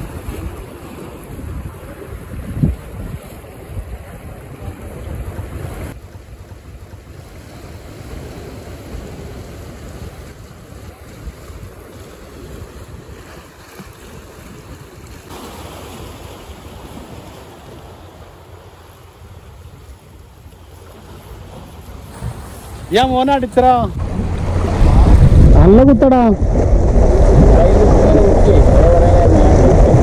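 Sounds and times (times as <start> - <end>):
wind gusting on microphone: 0.0 - 6.0, 21.5 - 30.0
sea waves washing ashore: 0.0 - 30.0.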